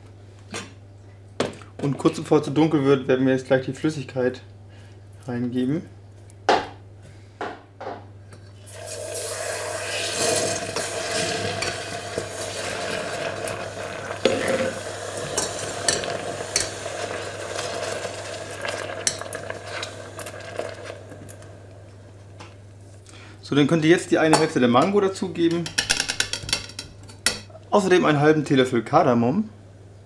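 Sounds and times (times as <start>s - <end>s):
sizzling hiss: 8.6s - 22.0s.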